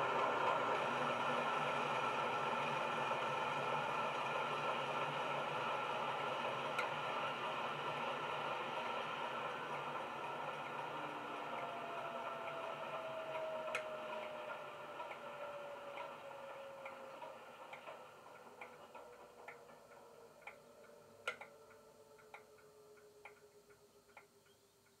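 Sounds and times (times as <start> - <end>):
model diesel engine winding down: 0.0 - 24.5
irregular ticks: 12.4 - 15.2, 15.9 - 25.0.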